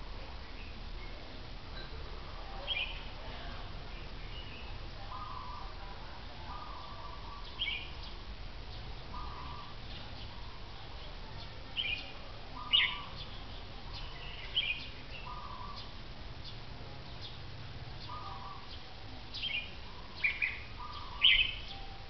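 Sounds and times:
birds giving sharp calls: 0:04.4 - 0:05.8, 0:06.4 - 0:10.6, 0:11.8 - 0:21.8.

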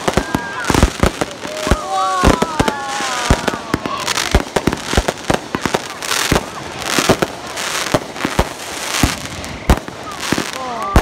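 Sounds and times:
fireworks bangs: 0:00.0 - 0:11.0
fireworks crackling and hiss: 0:00.0 - 0:11.0.

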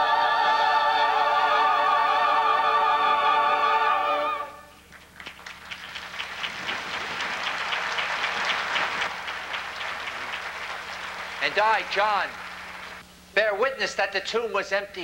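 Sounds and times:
choir singing held chord: 0:00.0 - 0:04.7
audience applauding: 0:04.9 - 0:13.0.

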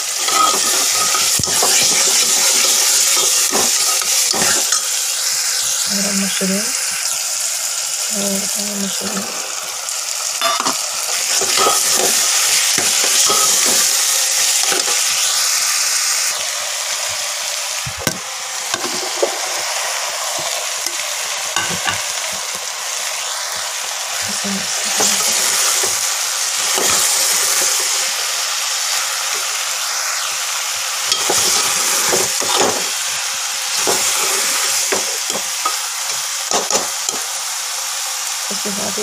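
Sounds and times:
food sizzling in a pot: 0:00.0 - 0:39.0
ladle knocking and scraping a pot: 0:00.2 - 0:04.8, 0:10.4 - 0:13.9.

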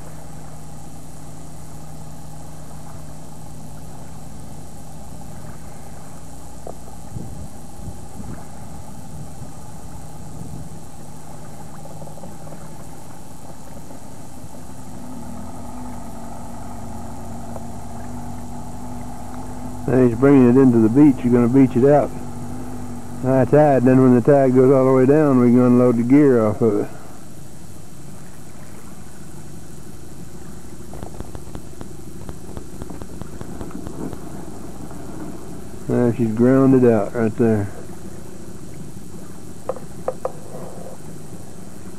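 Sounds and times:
boat motor humming: 0:00.0 - 0:41.9.

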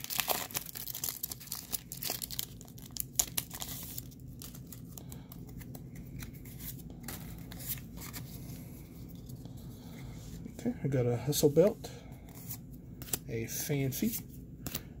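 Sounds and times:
foil wrapper tearing and crinkling: 0:00.0 - 0:04.8
cards clicking as handled: 0:14.6 - 0:14.9.

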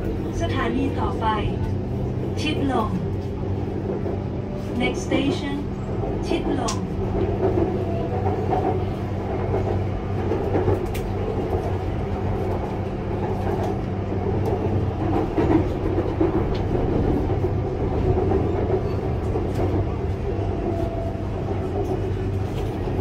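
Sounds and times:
train wheels rumbling on rail: 0:00.0 - 0:23.0
sharp track clicks: 0:06.3 - 0:07.7.

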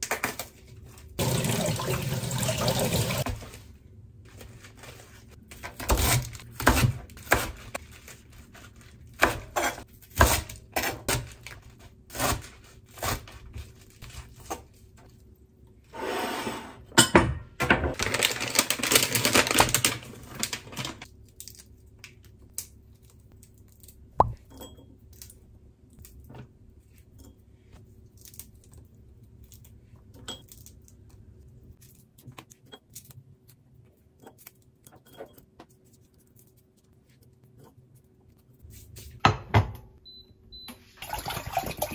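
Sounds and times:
plastic bag rustling: 0:18.0 - 0:21.1.

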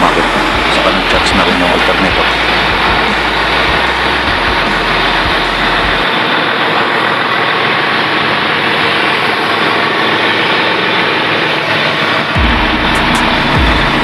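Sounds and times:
deep low hum: 0:00.0 - 0:06.2, 0:12.4 - 0:14.0
diesel engine running: 0:00.0 - 0:14.0.

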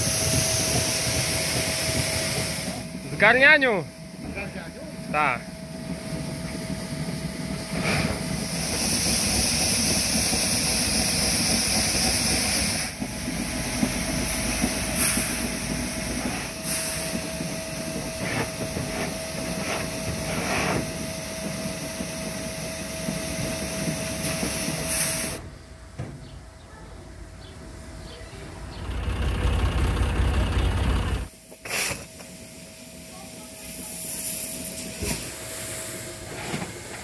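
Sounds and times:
strong hiss: 0:07.0 - 0:21.0, 0:31.3 - 0:36.4.

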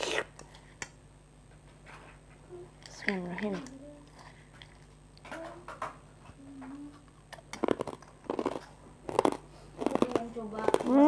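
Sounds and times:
crunchy chips being chewed: 0:07.3 - 0:11.0.

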